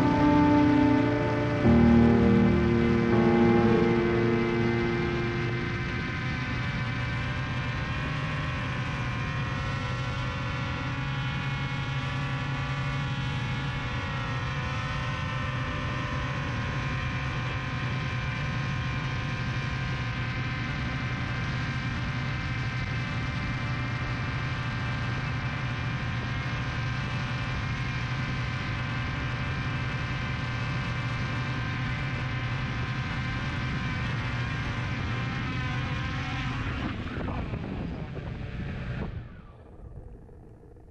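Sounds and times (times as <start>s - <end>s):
drone propellers humming: 0.0s - 9.7s.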